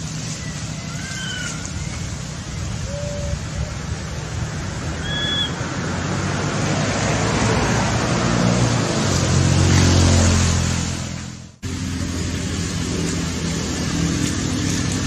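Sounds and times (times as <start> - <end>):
motor vehicle engine hum: 0.0 - 15.0
outdoor noise rush: 0.0 - 15.0.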